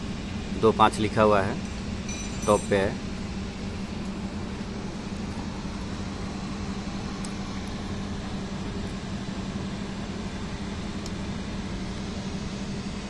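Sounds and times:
low machine hum: 0.0s - 13.0s.

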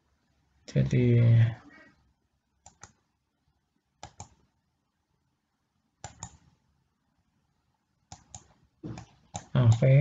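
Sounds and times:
computer mouse clicking: 2.6s - 3.1s, 4.0s - 4.5s, 6.0s - 6.5s, 8.1s - 9.9s.

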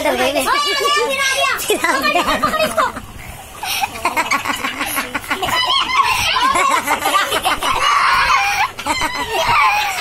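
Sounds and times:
child's high-pitched voice: 0.0s - 3.0s
people laughing: 0.0s - 10.0s.

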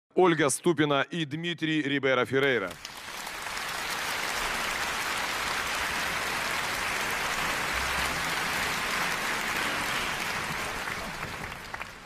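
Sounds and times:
audience applauding: 2.5s - 12.0s.

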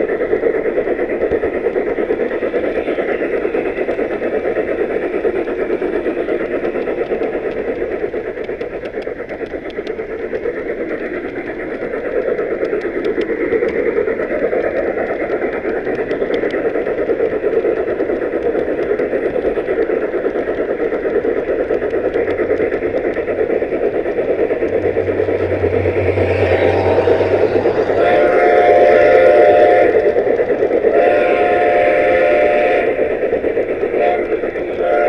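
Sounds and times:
model steam train rolling on track: 0.0s - 35.0s
low hum: 21.1s - 31.0s.

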